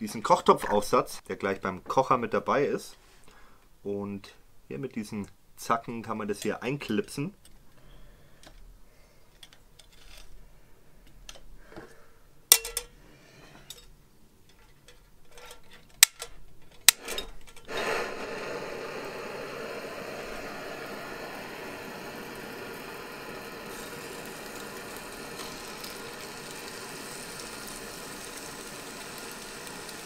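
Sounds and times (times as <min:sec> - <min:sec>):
metal clatter of stove parts: 0:09.3 - 0:10.4, 0:12.5 - 0:17.7
igniter clicks: 0:16.0 - 0:17.8
gas burner hissing: 0:16.8 - 0:30.0.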